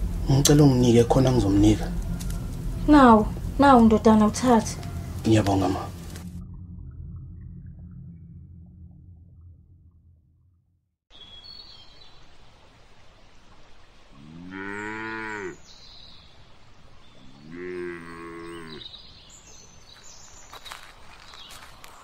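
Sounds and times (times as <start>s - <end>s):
low hum: 0.0s - 11.0s
faint outdoor background noise: 11.1s - 22.0s
cow mooing: 14.2s - 15.6s, 17.2s - 18.9s.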